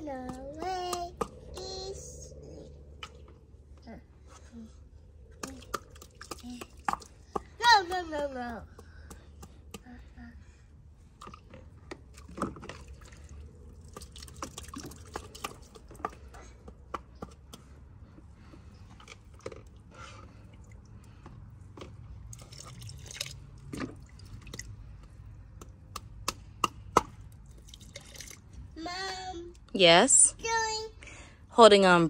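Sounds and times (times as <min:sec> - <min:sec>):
low steady rumble: 0:00.0 - 0:32.0
water dripping and splashing: 0:05.4 - 0:07.6, 0:12.1 - 0:16.3, 0:22.2 - 0:25.0, 0:27.4 - 0:28.6.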